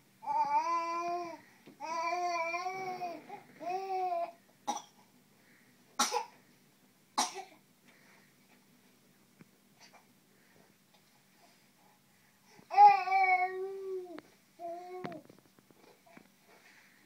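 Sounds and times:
infant cooing: 0.2 - 4.4, 12.7 - 15.2
baby coughing: 4.6 - 5.0, 6.0 - 6.4, 7.2 - 7.6.

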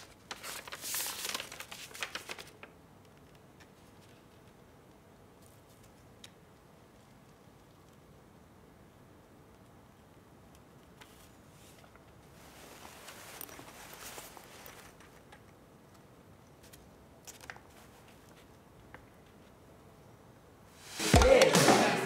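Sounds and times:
faint rustling: 11.0 - 15.5.

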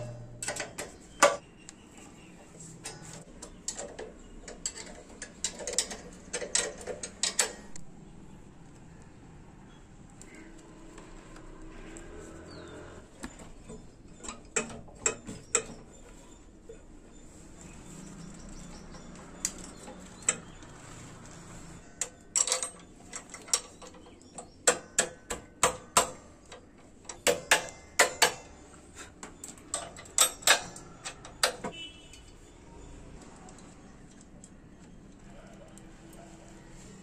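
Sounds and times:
spanners clicking on bolts: 0.0 - 1.4, 2.8 - 7.8, 13.2 - 16.8, 18.0 - 20.8, 21.8 - 32.5.

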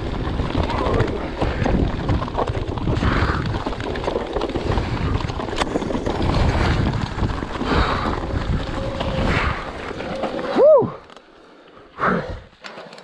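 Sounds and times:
wind buffeting microphone: 0.0 - 10.3
tyres rumbling on dirt: 0.0 - 11.3.

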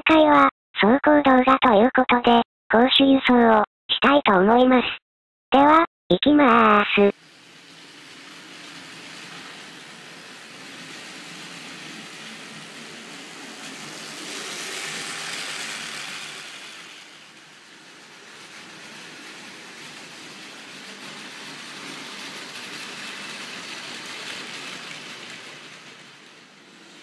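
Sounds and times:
toy train motor whirring and rattling: 7.0 - 27.0.

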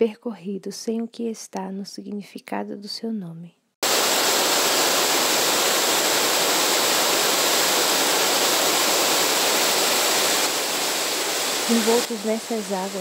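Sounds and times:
waterfall rushing: 3.8 - 13.0.

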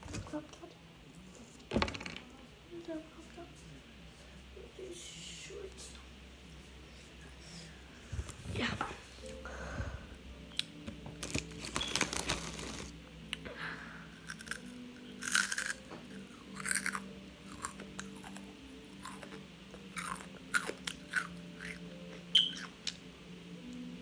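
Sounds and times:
person chewing crunchy snack: 14.2 - 21.8.

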